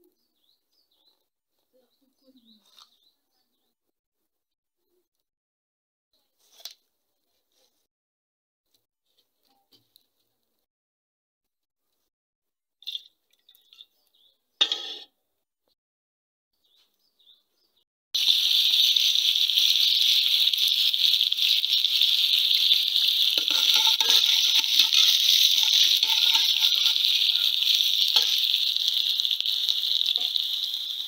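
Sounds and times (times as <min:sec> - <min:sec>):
onions sizzling in hot oil: 0:18.2 - 0:31.0.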